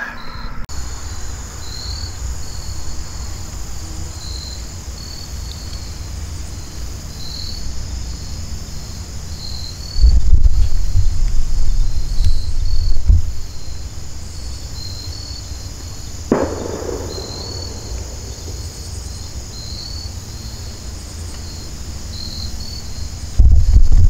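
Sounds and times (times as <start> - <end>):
insects chirping: 0.0 - 24.0
wind rumble on microphone: 9.8 - 14.5, 22.6 - 24.0.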